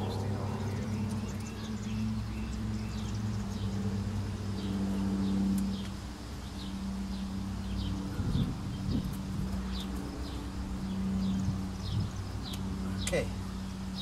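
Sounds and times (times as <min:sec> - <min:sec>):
low mechanical hum: 0:00.0 - 0:14.0
low rumble: 0:00.0 - 0:14.0.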